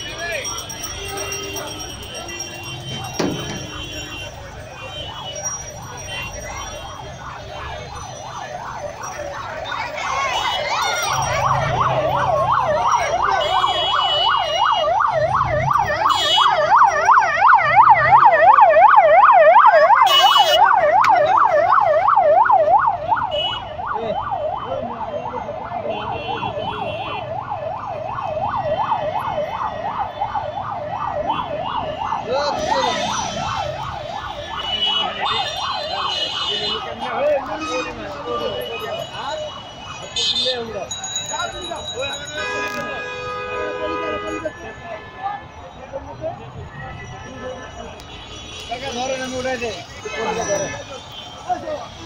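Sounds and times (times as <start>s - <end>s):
electronic siren yelping: 6.6s - 37.7s.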